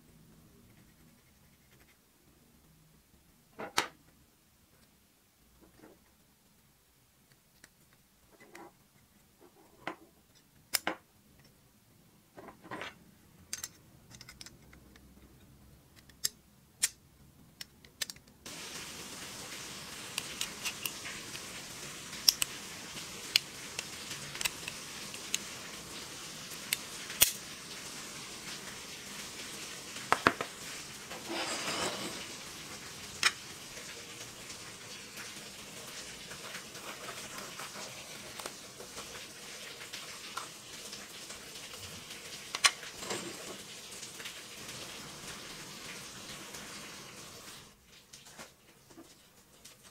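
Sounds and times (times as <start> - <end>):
metal parts clicking: 13.5 - 14.6
steady hiss: 18.5 - 49.9
brief scraping: 31.2 - 32.3.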